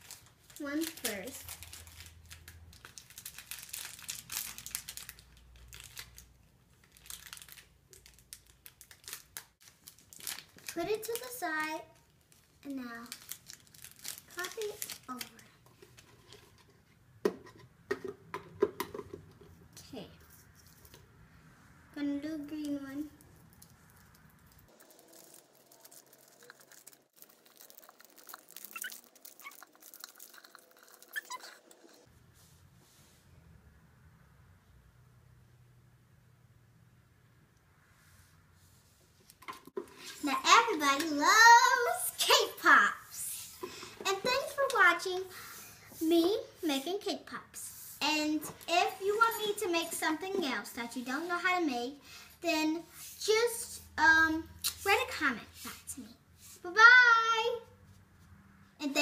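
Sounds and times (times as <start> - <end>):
plastic bag crinkling: 0.0 - 15.5, 23.4 - 32.0.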